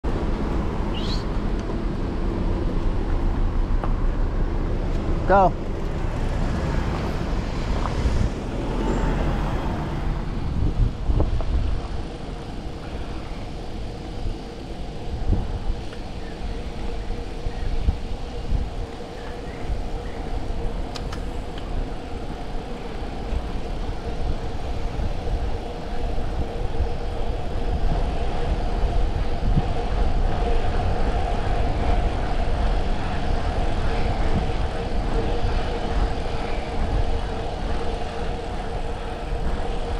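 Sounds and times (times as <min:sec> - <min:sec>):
tyre road noise: 0:00.0 - 0:39.9
wind buffeting microphone: 0:00.0 - 0:39.9.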